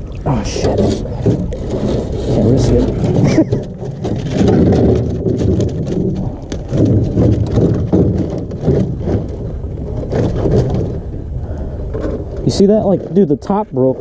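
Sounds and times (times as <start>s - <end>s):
knocks against metal boat: 2.7s - 9.4s.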